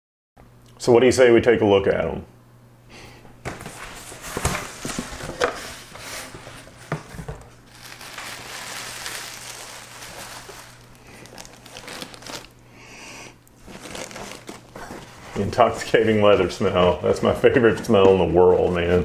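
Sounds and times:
packing wrap crinkling: 3.6 - 12.6, 13.5 - 16.9.

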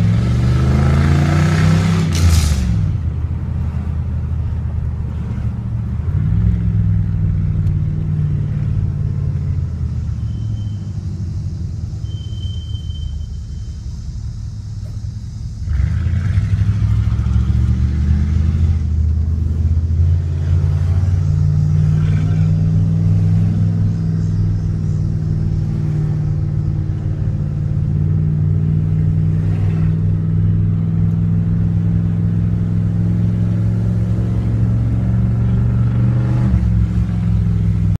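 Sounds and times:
pickup engine revving: 0.0 - 3.9, 14.8 - 38.0.

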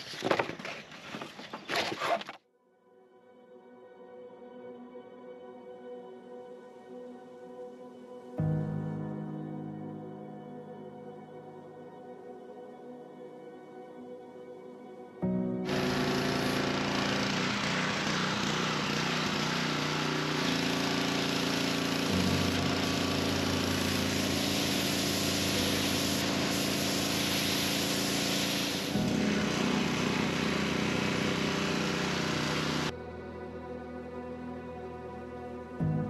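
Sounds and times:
pressure washer engine humming: 15.6 - 32.9
high-pressure water jet hissing: 15.7 - 32.9.

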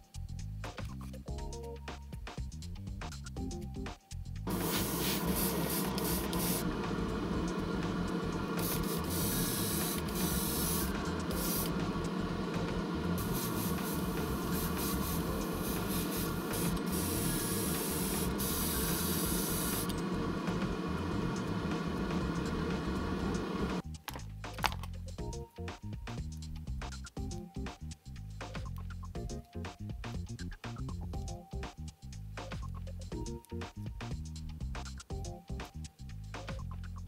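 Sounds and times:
airbrush spraying hiss: 4.5 - 23.8
steady low hum: 4.5 - 23.8.

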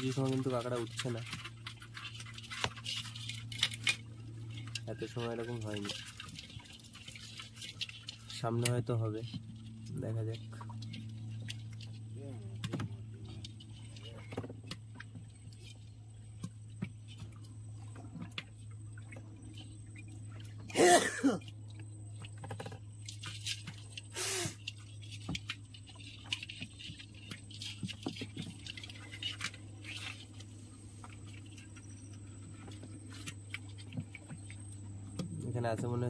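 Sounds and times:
steady low hum: 0.0 - 36.0
person coughing: 20.7 - 21.4.

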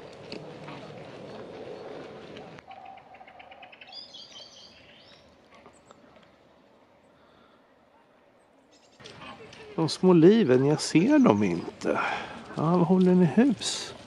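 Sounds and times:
small bird ticking calls: 2.6 - 6.0
high bird chirps: 2.7 - 5.3.

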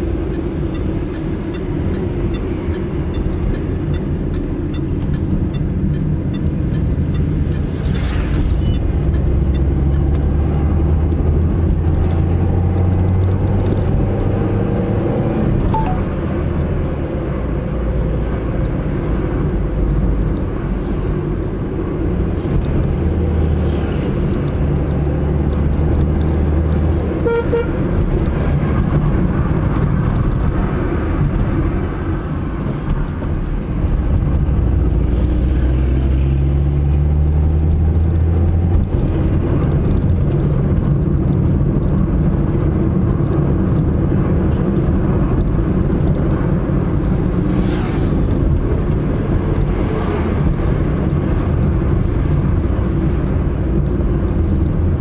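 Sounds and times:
car engine and road rumble: 0.0 - 55.0
car horn beep: 27.2 - 27.8.

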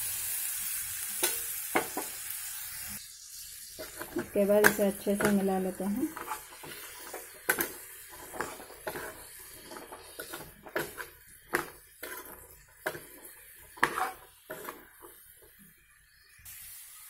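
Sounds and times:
utensils scraping frying pan: 3.8 - 15.6.

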